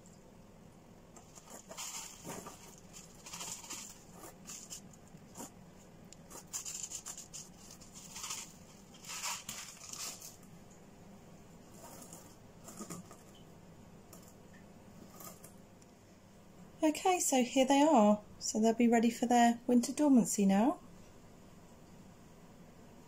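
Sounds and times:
gravel rattling into pot: 0:01.2 - 0:05.6, 0:06.2 - 0:10.5.

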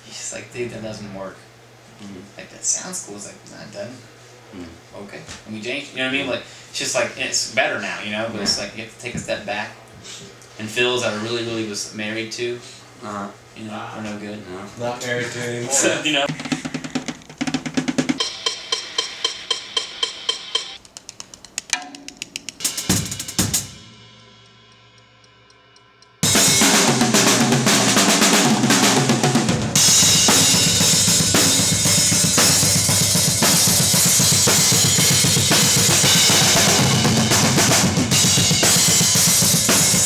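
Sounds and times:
fast full drum kit playing: 0:16.1 - 0:20.8, 0:21.4 - 0:40.0
snare drum strikes: 0:21.6 - 0:24.0.

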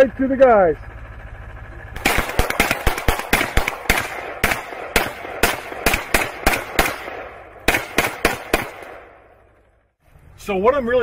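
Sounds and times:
rapid gunfire: 0:02.0 - 0:09.3.

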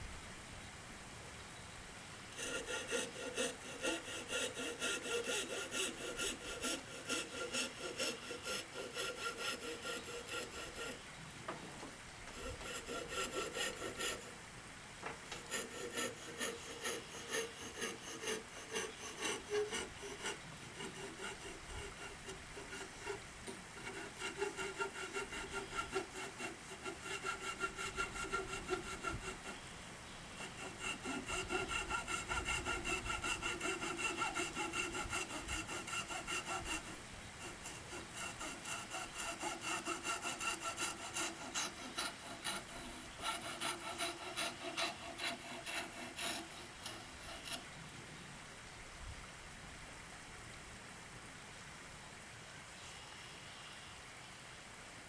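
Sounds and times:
saw cutting wood: 0:02.3 - 0:11.0, 0:12.3 - 0:14.4, 0:15.2 - 0:29.6, 0:30.3 - 0:47.6.

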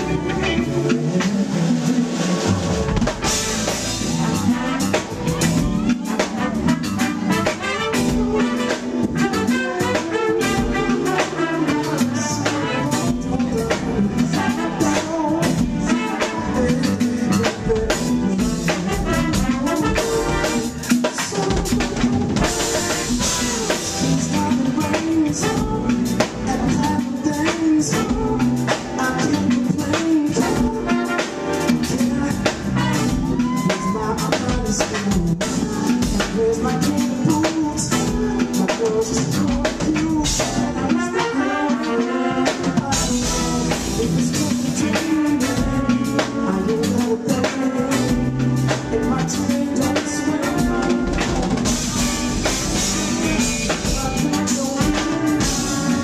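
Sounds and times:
drum kit beat: 0:00.0 - 0:56.0
live band playing: 0:00.0 - 0:56.0
man singing lead vocal: 0:00.0 - 0:56.0.

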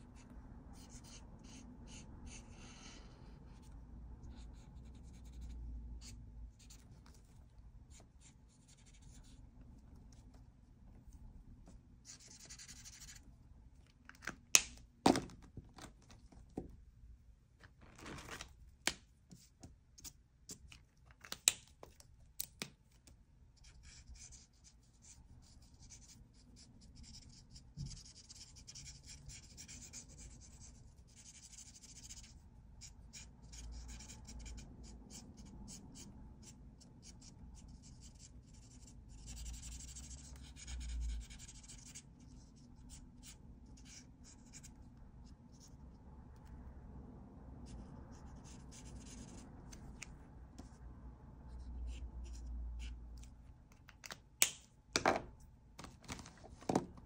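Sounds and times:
marker scratching on paper: 0:00.1 - 0:07.3, 0:07.9 - 0:09.4, 0:12.0 - 0:13.2, 0:23.6 - 0:44.8, 0:47.6 - 0:50.0, 0:51.5 - 0:53.0.

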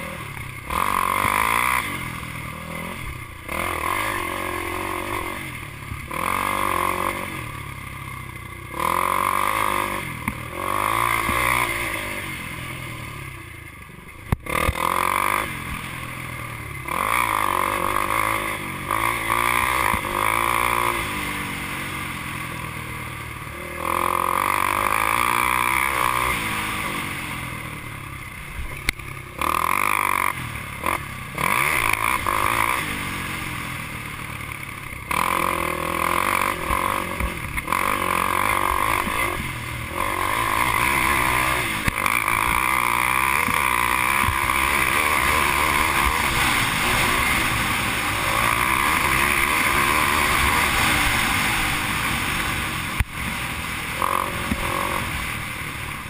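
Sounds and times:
atv engine revving: 0:00.0 - 0:56.0.

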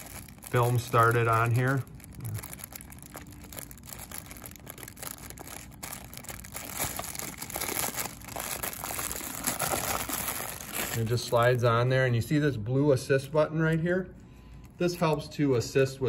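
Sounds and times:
plastic film crinkling: 0:00.0 - 0:11.9.

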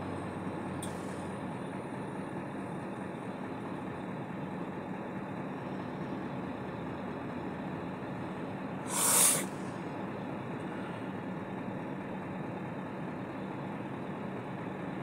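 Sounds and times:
engine idling hum: 0:00.0 - 0:15.0
short loud hiss: 0:08.9 - 0:09.6.

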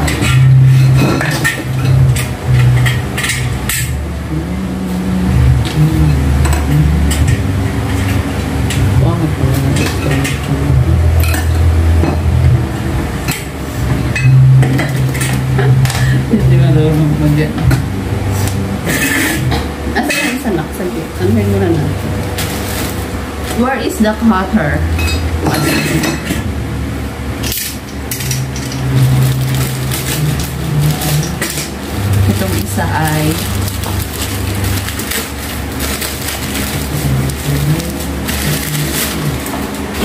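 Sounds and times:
steady low hum: 0:00.0 - 0:40.0
plastic wrapping rustling: 0:20.3 - 0:23.6, 0:27.6 - 0:40.0
dish rack parts clinking: 0:27.4 - 0:39.5.

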